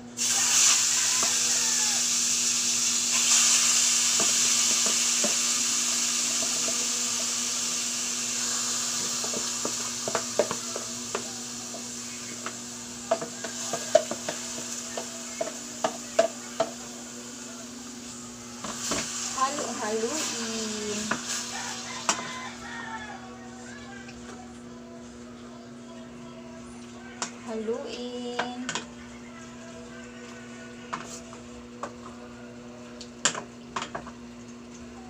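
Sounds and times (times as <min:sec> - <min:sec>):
meat sizzling in hot oil: 0:00.2 - 0:23.1.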